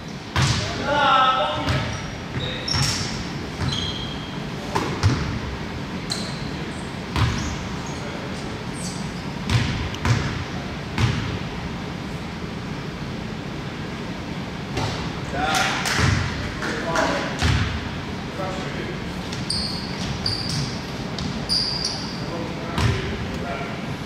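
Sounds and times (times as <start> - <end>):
basketball bouncing: 0.3 - 0.7, 1.6 - 3.8, 4.8 - 5.4, 7.1 - 7.4, 9.5 - 10.4, 11.0 - 11.4, 15.9 - 16.4, 17.4 - 17.8, 22.8 - 23.1
sneaker squeaks: 1.5 - 5.4, 6.0 - 10.4, 19.2 - 23.1.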